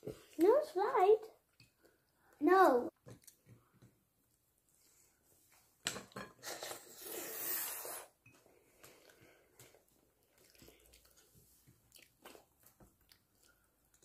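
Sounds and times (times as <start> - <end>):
person chewing food: 3.0 - 4.4, 6.4 - 14.0.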